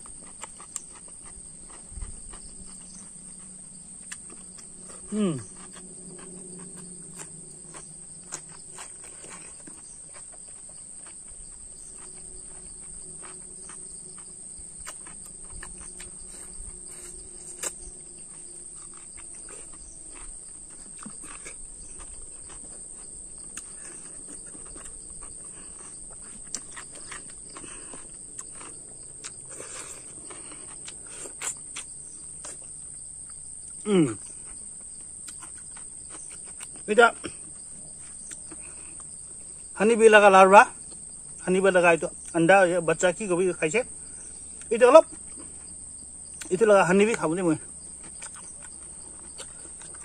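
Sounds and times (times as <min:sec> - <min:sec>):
chewing and mouth clicks: 0:00.0 - 0:39.7, 0:43.8 - 0:50.0
high-pitched insect chorus: 0:00.0 - 0:50.0.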